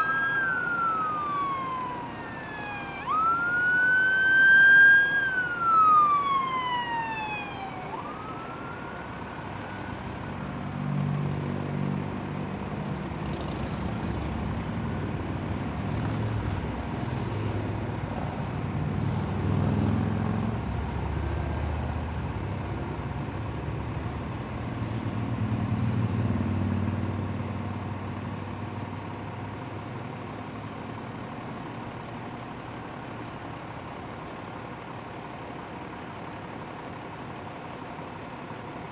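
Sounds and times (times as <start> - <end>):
police siren wailing: 0.0 - 11.4
vehicle engines passing: 0.0 - 34.6.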